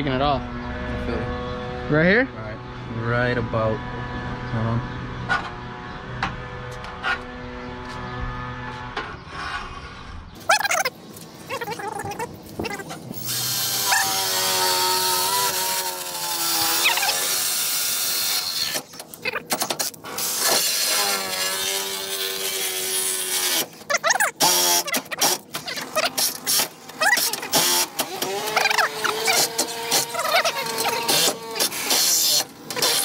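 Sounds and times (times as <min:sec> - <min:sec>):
drill motor whining: 0:12.8 - 0:33.0.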